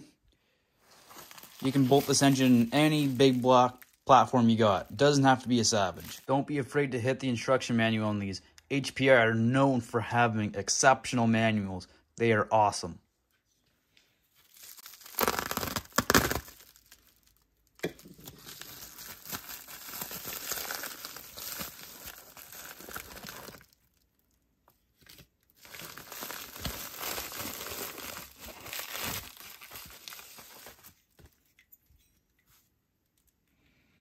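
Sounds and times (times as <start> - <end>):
bubble wrap crinkling: 0.8 - 4.1, 14.3 - 31.5
bubble wrap tearing: 0.9 - 4.0, 14.4 - 31.3.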